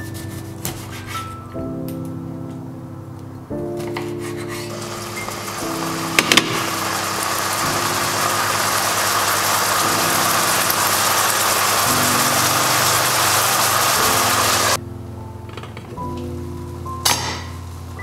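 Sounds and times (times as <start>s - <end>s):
soft background music: 0.0s - 18.0s
fish sizzling in a frying pan: 4.8s - 14.8s.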